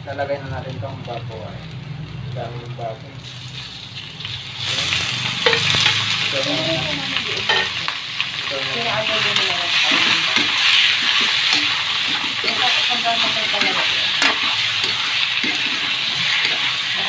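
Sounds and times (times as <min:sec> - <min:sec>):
meat sizzling in hot oil: 0:00.0 - 0:17.0
metal spatula scraping wok: 0:04.3 - 0:07.9, 0:08.8 - 0:17.0.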